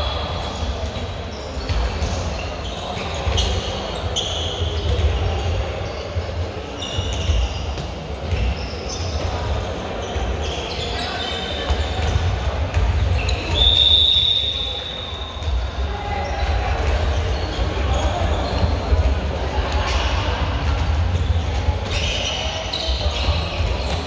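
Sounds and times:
shoes squeaking: 1.3s - 5.1s, 10.0s - 12.2s, 17.1s - 18.9s.

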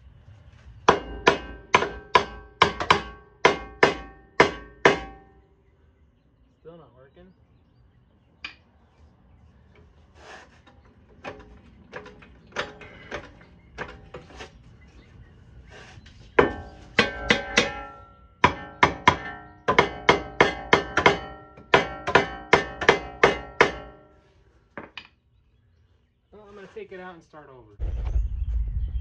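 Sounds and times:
hammer striking steel suspension: 0.9s - 5.3s, 16.4s - 24.2s.

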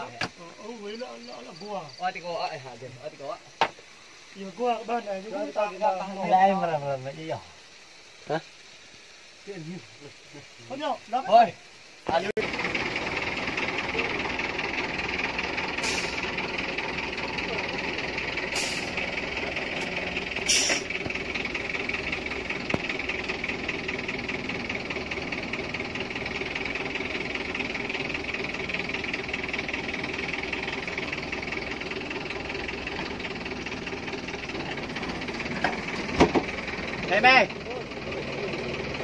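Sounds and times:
truck engine idling: 12.4s - 39.0s
knocks: 35.6s - 36.6s.

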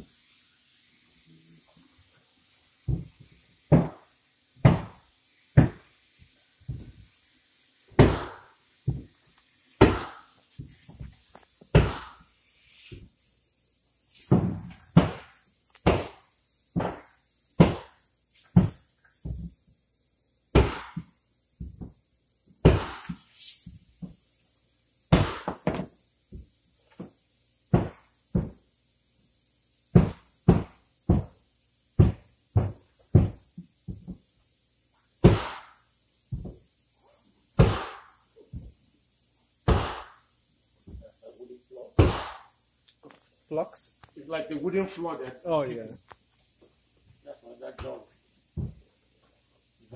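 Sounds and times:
sharp knocks and thuds: 2.9s - 5.0s, 5.6s - 5.9s, 6.6s - 7.0s, 7.9s - 9.2s, 9.8s - 12.2s, 14.3s - 17.9s, 18.5s - 19.6s, 20.5s - 22.0s, 22.6s - 23.2s, 25.1s - 27.1s, 27.7s - 28.6s, 29.9s - 31.4s, 32.0s - 34.2s, 35.2s - 35.7s, 36.3s - 36.6s, 37.6s - 38.8s, 39.7s - 40.2s, 42.0s - 42.5s, 48.6s - 48.8s.

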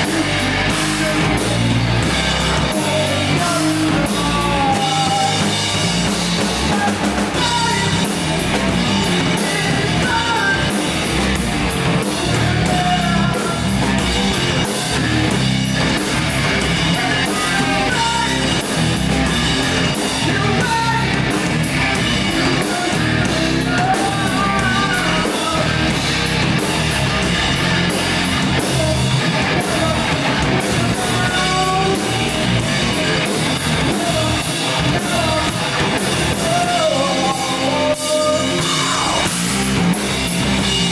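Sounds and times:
bass guitar: 0.0s - 40.9s
drum kit: 0.0s - 40.9s
electric guitars: 0.0s - 40.9s
man singing into microphone: 2.6s - 5.5s, 9.3s - 10.8s, 12.2s - 13.7s, 16.9s - 18.6s, 20.2s - 21.2s, 22.3s - 26.0s, 28.8s - 32.5s, 33.8s - 35.7s, 36.3s - 39.3s.

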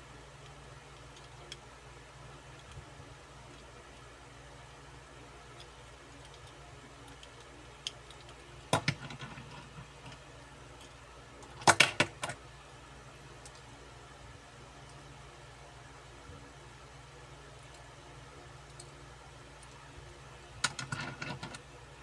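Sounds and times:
metal toy cars clacking: 20.6s - 21.6s.

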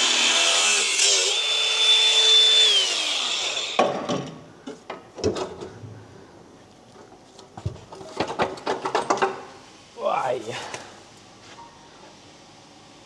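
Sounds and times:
power tool cutting pipe: 0.0s - 3.8s.

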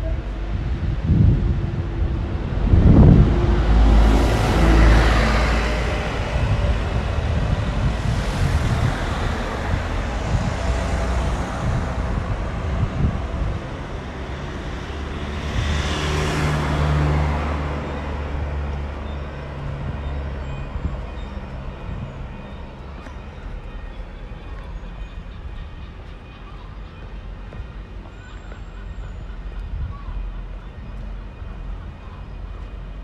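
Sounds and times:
truck driving past: 0.2s - 22.8s.

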